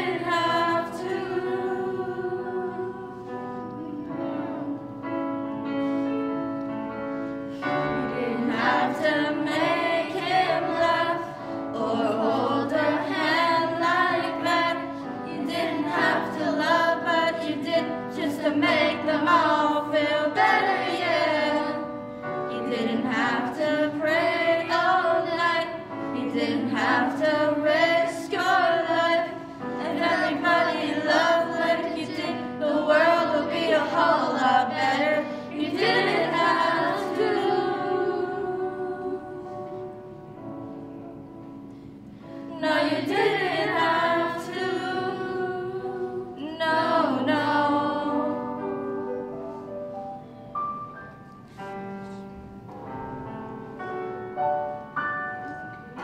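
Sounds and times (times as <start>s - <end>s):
group singing slow song: 0.0s - 5.1s, 7.6s - 40.1s, 42.2s - 49.3s
held accompaniment chords: 0.0s - 56.0s.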